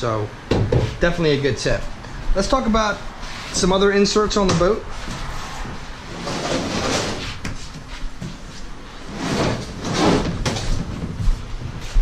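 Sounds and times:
plastic panel rubbing and scraping: 6.1s - 7.7s.

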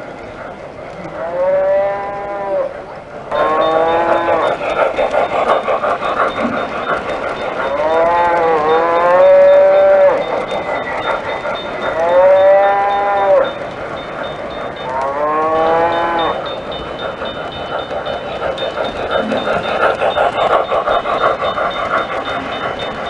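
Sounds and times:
model train running: 0.0s - 23.0s.

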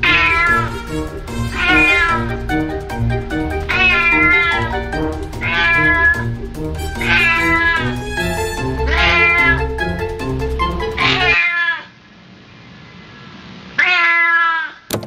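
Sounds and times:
cat meowing: 0.0s - 2.4s, 3.6s - 8.0s, 8.9s - 9.7s, 11.0s - 11.9s, 13.8s - 14.8s
background music with bass: 0.0s - 11.4s.

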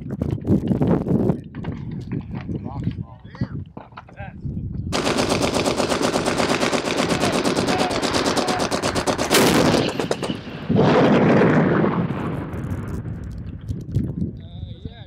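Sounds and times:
howitzer blast: 4.9s - 13.2s
rapid sharp cracks: 5.0s - 11.0s.

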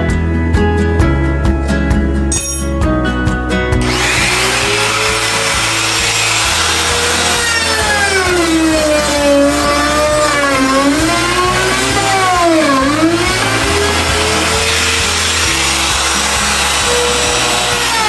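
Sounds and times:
router cutting wood: 3.8s - 18.0s.

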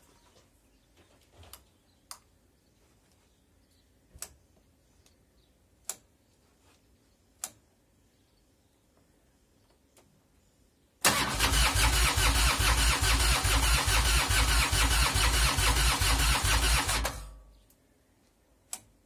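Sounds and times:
faint sharp control clicks: 7.4s - 7.6s.

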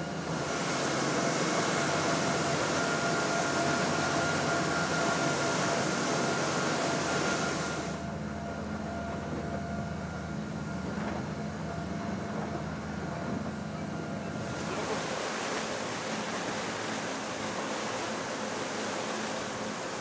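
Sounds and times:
rushing water: 0.0s - 8.2s, 12.2s - 20.0s
boat engine drone: 0.0s - 20.0s.

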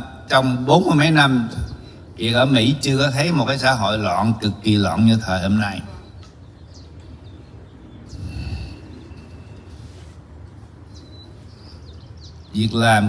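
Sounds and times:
low steady rumble: 0.0s - 13.0s
faint bird chirps: 5.9s - 12.8s
man breathing into microphone: 8.1s - 10.3s.

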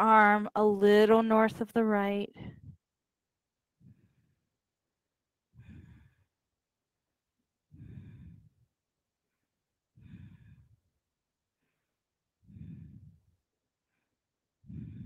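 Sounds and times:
woman breathing softly: 3.8s - 4.6s, 5.5s - 6.4s, 7.7s - 10.9s, 11.5s - 15.0s.

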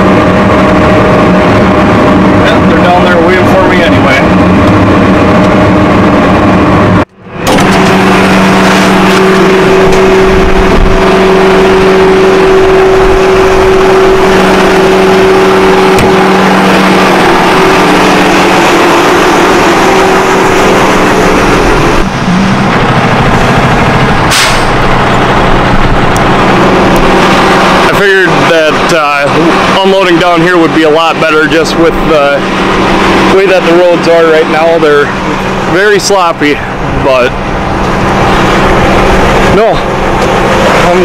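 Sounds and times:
outdoor noise: 0.0s - 41.0s
tractor diesel engine running: 0.0s - 41.0s
truck engine idling: 0.0s - 41.0s
short hiss: 24.3s - 24.7s.

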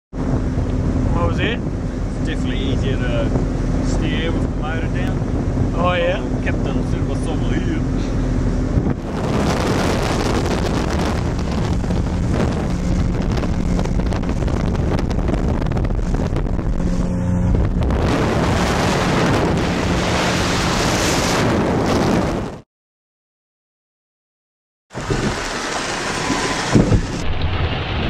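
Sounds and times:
outboard motor running: 0.2s - 21.0s, 25.0s - 28.0s
wind buffeting microphone: 0.2s - 22.6s, 25.0s - 28.0s.

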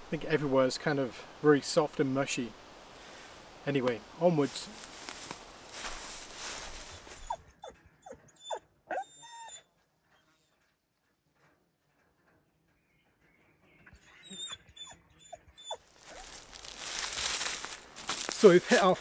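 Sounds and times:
rustling: 2.5s - 7.5s, 15.7s - 19.0s
grouse squeaky whining calls: 13.8s - 16.7s.

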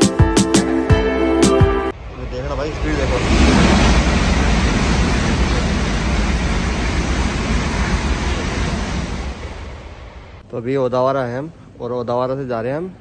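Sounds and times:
high-speed train passing: 1.9s - 10.4s.

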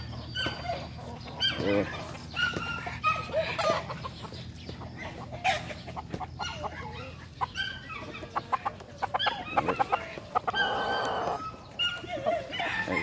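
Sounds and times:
roosters clucking: 0.0s - 13.0s
rooster crowing: 12.5s - 13.0s.

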